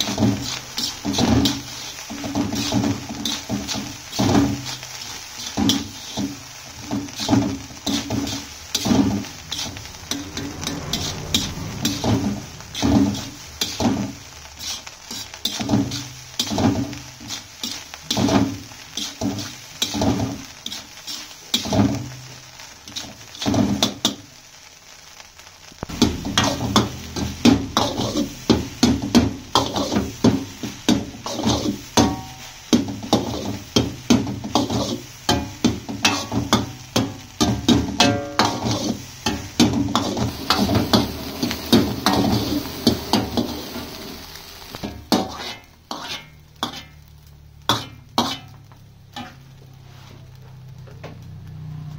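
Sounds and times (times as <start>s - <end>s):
spatula scraping iron wok: 0.0s - 24.2s, 25.8s - 50.4s
food sizzling: 0.0s - 51.9s
rice frying: 0.0s - 51.9s.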